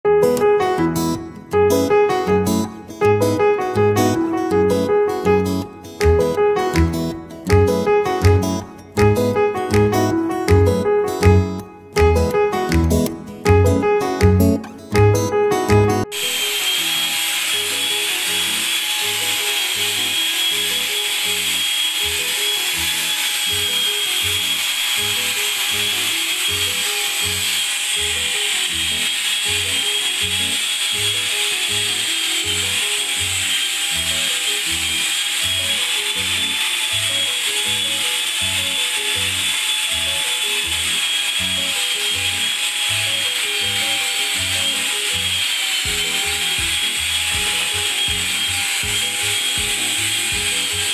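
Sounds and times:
background music with a beat: 0.2 - 16.1, 45.8 - 50.9
drywall sander whining: 16.0 - 50.9.

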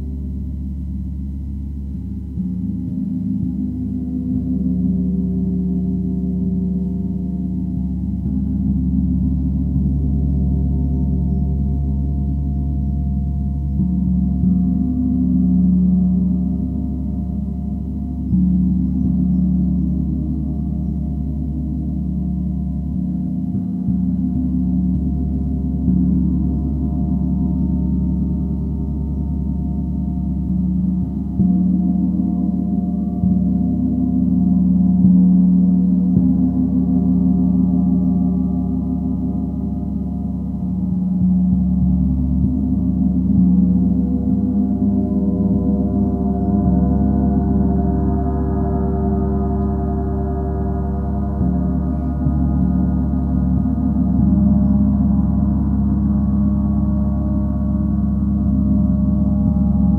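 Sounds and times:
gong low tones: 0.0 - 59.9.

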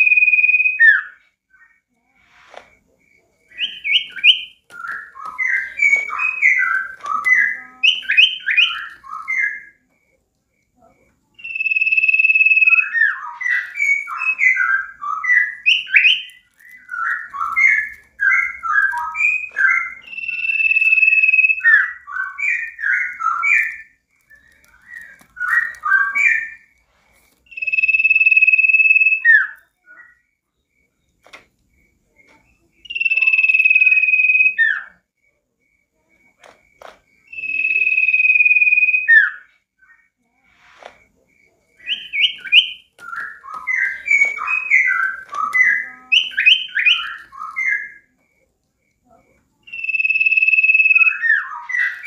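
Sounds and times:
long high bird whistle: 0.0 - 1.3, 11.4 - 16.4, 17.0 - 26.7, 27.5 - 30.1, 32.8 - 34.9, 37.3 - 39.5, 49.7 - 52.0
songbird chattering and twittering: 3.1 - 10.2, 27.4 - 35.0, 41.3 - 52.0.

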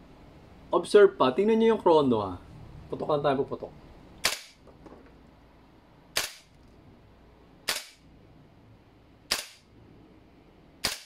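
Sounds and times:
airsoft rifle shots: 4.2 - 4.6, 6.2 - 6.5, 7.7 - 8.0, 9.3 - 9.7, 10.8 - 11.0.

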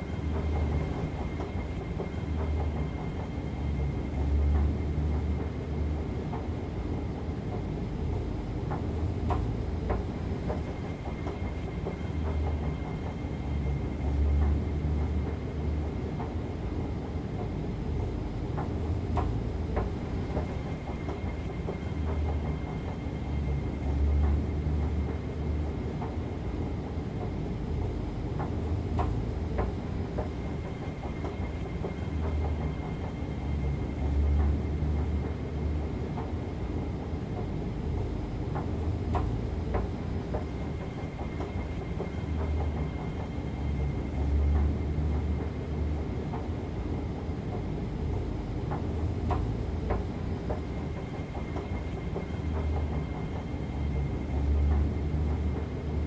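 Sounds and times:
escalator steps clacking: 27.2 - 56.0.

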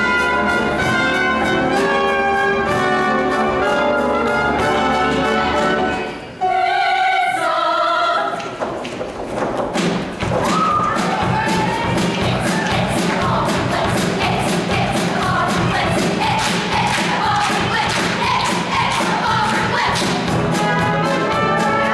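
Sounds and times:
choir singing: 2.8 - 8.5, 11.2 - 21.9
live band with drum beat: 9.6 - 21.9.

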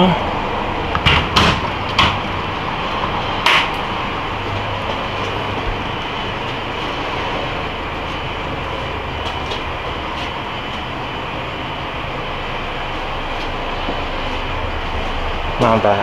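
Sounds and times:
steady rushing noise: 0.0 - 16.0.

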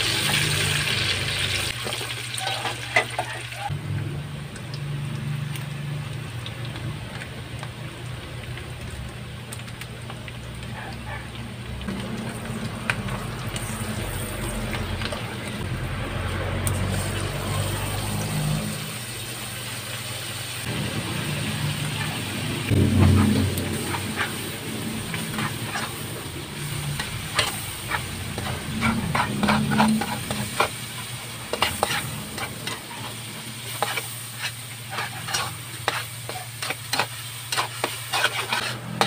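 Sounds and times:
oil sizzling in a wok: 0.0 - 39.0
spatula scraping a pan: 23.0 - 39.0.

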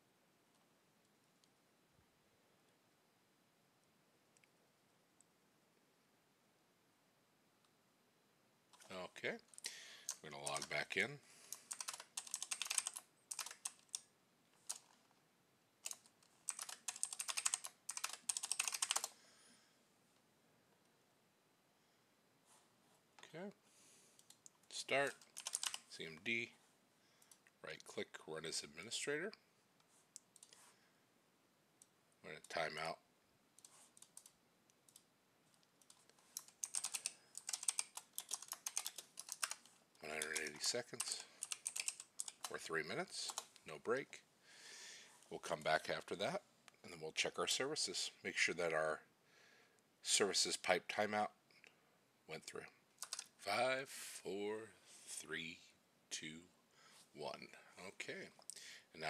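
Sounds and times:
typing on computer keyboard: 11.5 - 15.0, 15.8 - 19.2, 25.1 - 25.9, 33.6 - 35.1, 35.8 - 42.6, 53.0 - 53.3.

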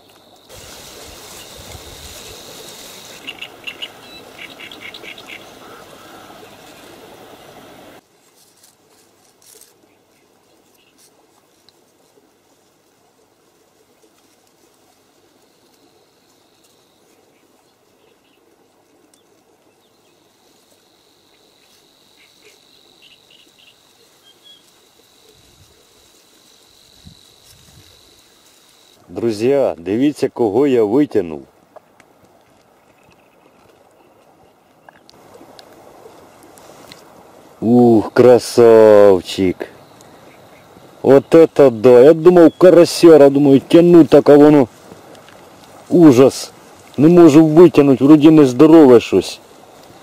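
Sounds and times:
insect trilling: 0.0 - 7.1, 19.9 - 29.0
background hiss: 0.0 - 50.0
bird chirping: 2.2 - 6.8, 21.6 - 24.7, 42.2 - 42.8.

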